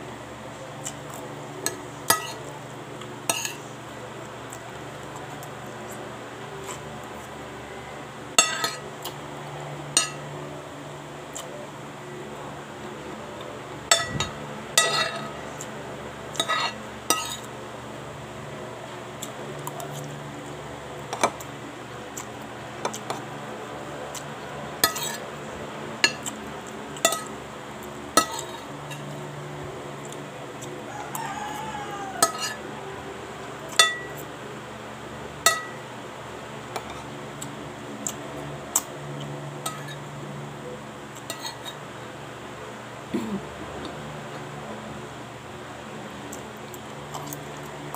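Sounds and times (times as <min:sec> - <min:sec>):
cutlery clinking on a plate: 0:01.6 - 0:02.5, 0:03.3 - 0:03.6, 0:08.4 - 0:08.8, 0:10.0 - 0:10.2, 0:13.9 - 0:15.4, 0:16.4 - 0:17.5, 0:28.2 - 0:29.0, 0:32.2 - 0:32.6, 0:39.7 - 0:40.0.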